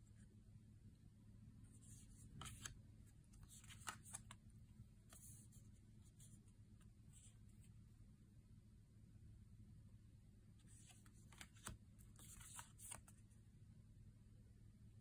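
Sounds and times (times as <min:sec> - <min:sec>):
low room hum: 0:00.0 - 0:15.0
cards sliding and tapping: 0:01.8 - 0:02.8, 0:03.4 - 0:04.4, 0:10.7 - 0:13.2.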